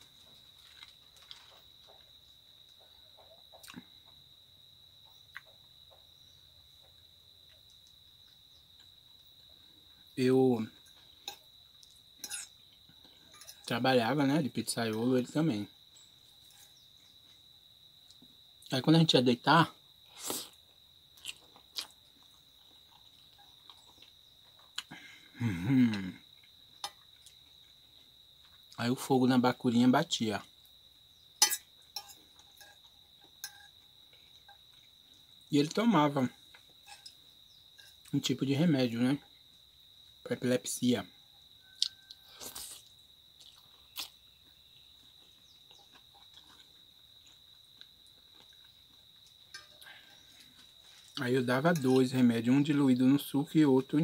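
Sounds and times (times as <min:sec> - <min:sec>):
insects chirring: 0:00.0 - 0:54.0
man chewing and slurping noodles: 0:20.0 - 0:28.6, 0:42.3 - 0:51.2.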